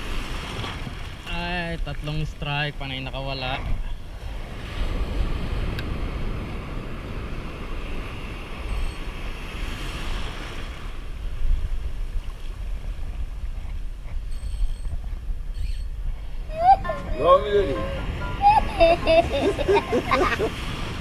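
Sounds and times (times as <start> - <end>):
surf washing in: 4.1 - 13.0, 16.2 - 21.0.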